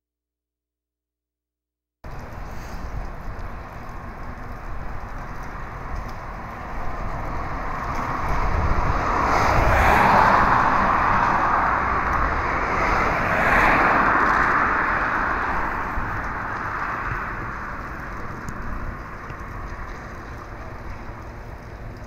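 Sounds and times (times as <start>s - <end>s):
passing vehicle rushing: 6.6s - 20.5s.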